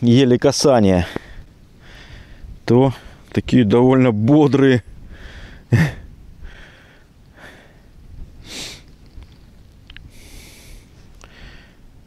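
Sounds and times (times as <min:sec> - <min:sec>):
man sniffing through nose: 0:08.4 - 0:08.9, 0:10.1 - 0:10.9.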